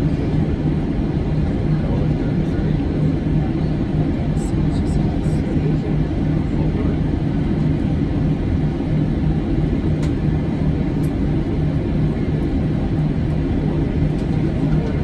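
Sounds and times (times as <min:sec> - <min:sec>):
aircraft cabin rumble: 0:00.0 - 0:15.0.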